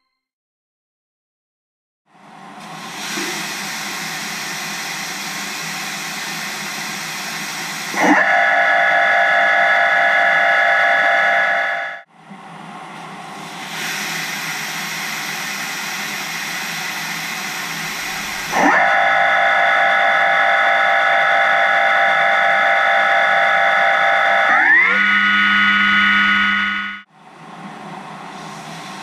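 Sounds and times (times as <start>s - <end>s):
coolant jet hissing: 2.7s - 8.0s, 13.4s - 18.6s
machine whine: 2.9s - 12.1s, 13.5s - 29.0s.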